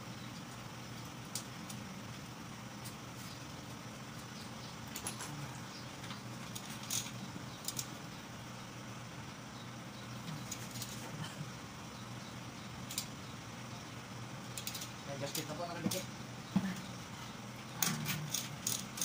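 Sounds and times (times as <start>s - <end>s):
steady low hum: 0.0s - 19.0s
ratchet wrench clicking: 6.5s - 8.0s, 12.8s - 13.2s, 14.5s - 16.0s, 17.8s - 19.0s
light metal clicks: 14.5s - 16.1s.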